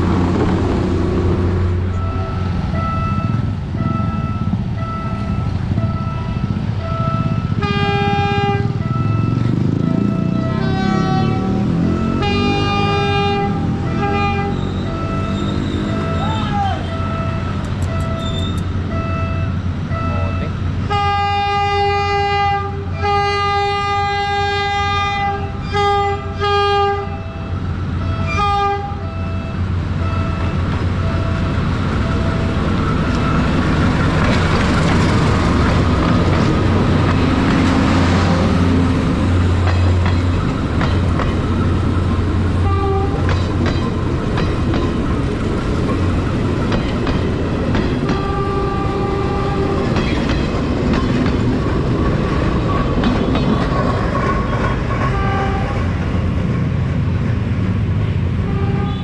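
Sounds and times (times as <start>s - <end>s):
diesel engine rumble: 0.0s - 20.9s, 29.6s - 59.0s
train horn blasts: 1.9s - 31.4s, 42.5s - 43.5s, 48.0s - 50.1s, 55.0s - 56.0s, 58.4s - 59.0s
wheels clacking over rail joints: 30.4s - 58.9s.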